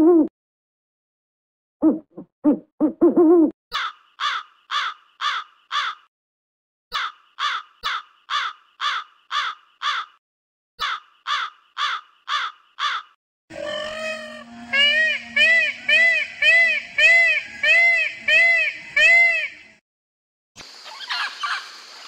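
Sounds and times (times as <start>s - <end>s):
crow cawing: 3.8s - 6.1s, 7.0s - 10.2s, 10.8s - 13.9s
owl hooting: 13.5s - 19.6s.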